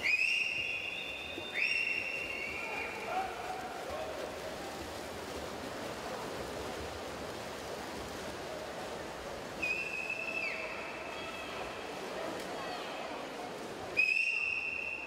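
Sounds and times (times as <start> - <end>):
high whistle: 0.0 - 2.7, 14.0 - 15.0
swimmers splashing: 0.0 - 15.0.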